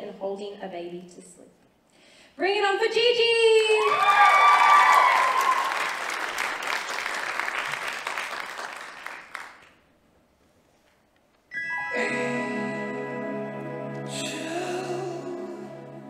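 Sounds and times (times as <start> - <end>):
person whooping: 3.8 - 5.9
audience applauding and cheering: 3.8 - 9.8
soft music with sustained tones: 11.5 - 16.0.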